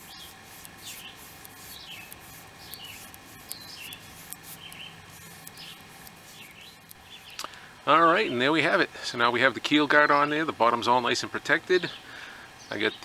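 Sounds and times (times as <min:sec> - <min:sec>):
bird chirping: 0:00.0 - 0:08.5.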